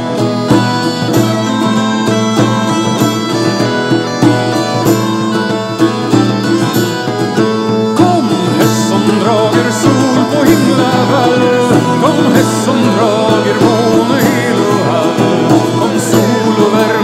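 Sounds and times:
bagpipe melody over drone: 0:00.0 - 0:17.0
bouzouki: 0:00.0 - 0:17.0
frame drum and tambourine beat: 0:00.0 - 0:17.0.

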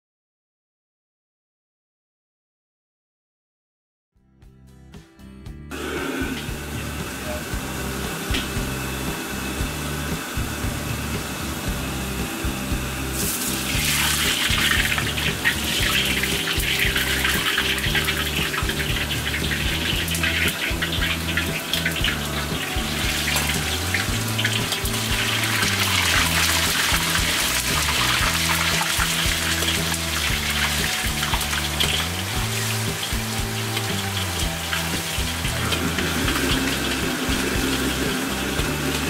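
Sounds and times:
background music: 0:04.2 - 0:39.0
oil sizzling in a wok: 0:05.7 - 0:39.0.

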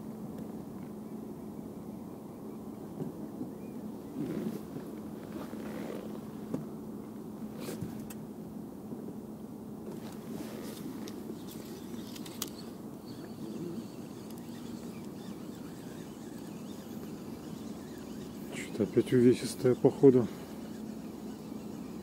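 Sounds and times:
steady low hum: 0:00.0 - 0:22.0
fishing reel clicks and rustles: 0:10.4 - 0:22.0.

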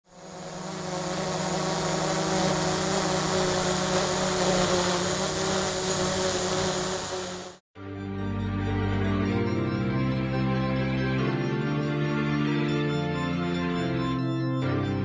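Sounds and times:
hiss: 0:00.1 - 0:07.6.

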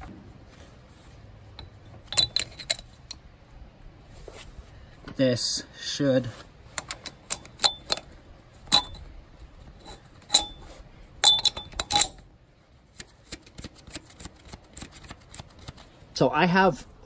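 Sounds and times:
metal bolt clinking: 0:01.5 - 0:03.2, 0:06.7 - 0:12.3.

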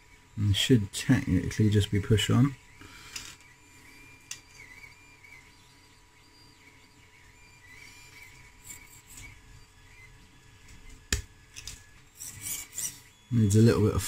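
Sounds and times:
faint high whistle-like tone: 0:02.7 - 0:10.2.

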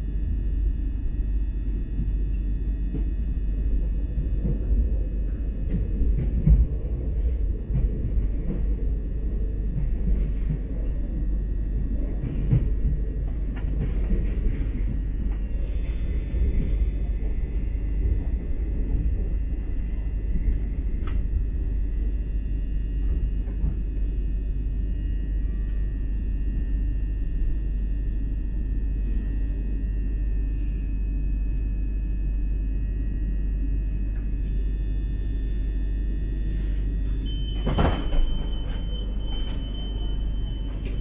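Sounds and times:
train cabin low rumble: 0:00.0 - 0:41.0
faint steady whine: 0:12.8 - 0:41.0.

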